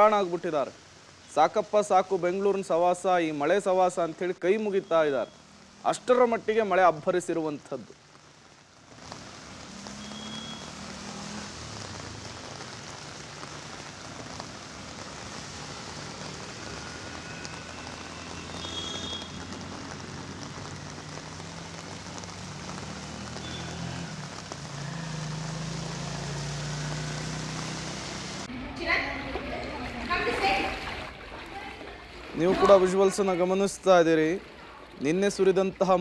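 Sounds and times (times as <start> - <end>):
heavy rain and rushing water: 0.0 - 36.0.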